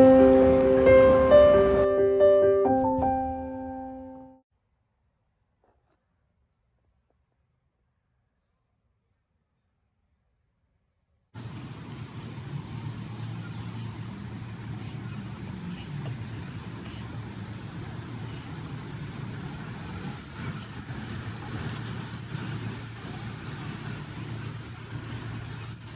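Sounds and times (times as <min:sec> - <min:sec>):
faint street noise: 0:00.0 - 0:01.9, 0:11.4 - 0:25.9
city traffic rumble: 0:00.0 - 0:02.0, 0:11.4 - 0:25.9.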